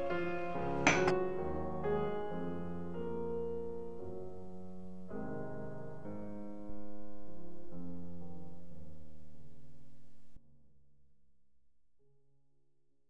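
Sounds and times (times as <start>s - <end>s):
slow piano chords: 0.0s - 10.4s.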